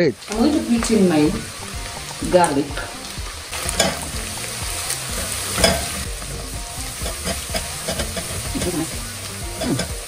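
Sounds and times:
onions sizzling in oil: 0.0s - 10.0s
spoon scraping pot: 5.1s - 6.1s, 7.0s - 10.0s.

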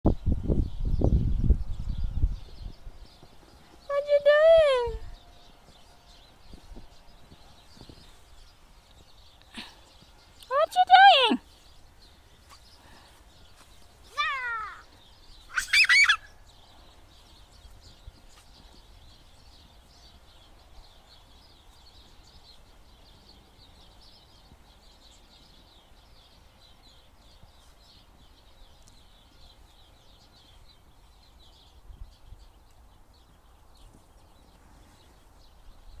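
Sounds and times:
toddler squealing: 14.2s - 14.8s, 15.5s - 16.3s.

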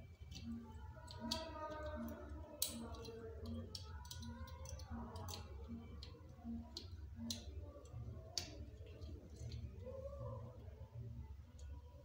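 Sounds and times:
low steady hum: 0.0s - 12.0s
small clicks and taps of hands: 2.6s - 9.6s.

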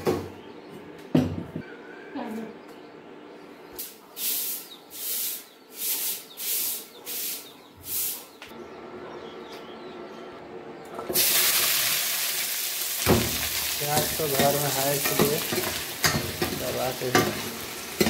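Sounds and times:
broom sweeping cement floor: 3.8s - 8.4s
onions sizzling in hot pan: 11.1s - 18.0s.

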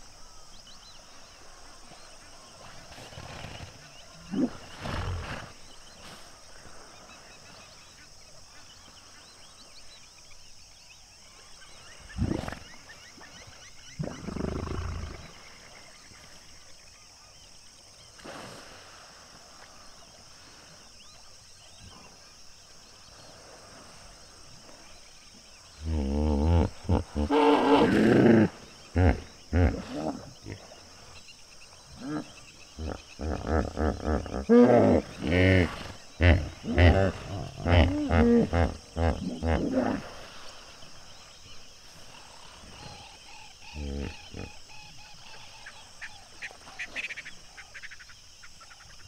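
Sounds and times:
hippopotamus grunting calls: 25.8s - 31.1s, 31.8s - 40.2s, 43.6s - 44.8s.

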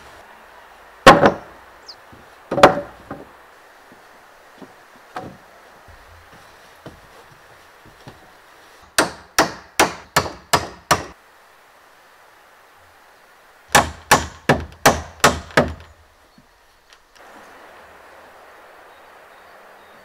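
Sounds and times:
hammer striking wood: 1.0s - 1.5s, 2.5s - 3.3s, 9.0s - 11.2s, 13.7s - 15.9s.

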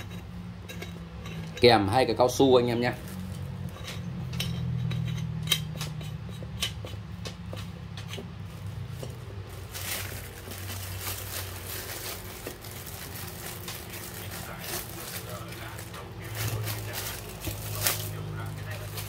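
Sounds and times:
steady low hum: 0.0s - 19.0s
soft rustle: 8.4s - 19.0s.

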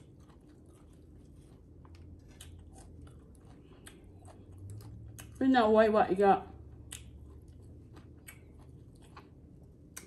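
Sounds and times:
low steady hum: 0.0s - 10.0s
soft chewing: 0.0s - 10.0s.

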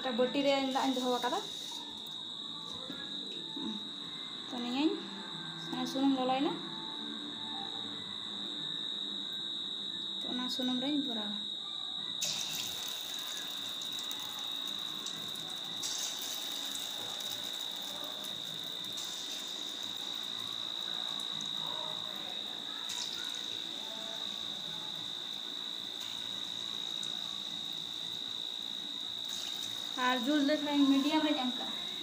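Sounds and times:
fritters sizzling in hot oil: 12.2s - 21.4s, 22.2s - 31.3s.

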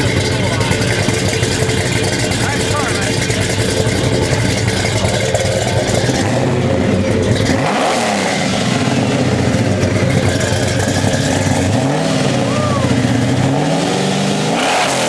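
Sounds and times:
car engine running rough and revving: 0.0s - 15.0s.

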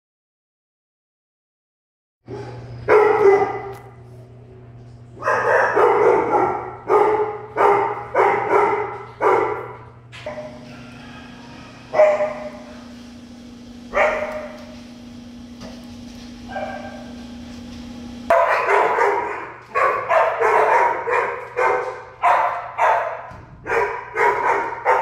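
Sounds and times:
dogs barking: 2.3s - 4.0s, 5.1s - 13.0s, 13.8s - 14.8s, 16.4s - 17.4s, 18.3s - 25.0s.

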